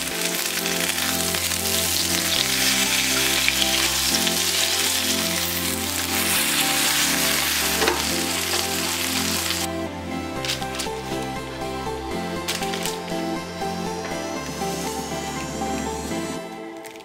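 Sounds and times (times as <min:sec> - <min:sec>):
fish sizzling in a frying pan: 0:00.0 - 0:09.7
soft background music: 0:00.0 - 0:17.0.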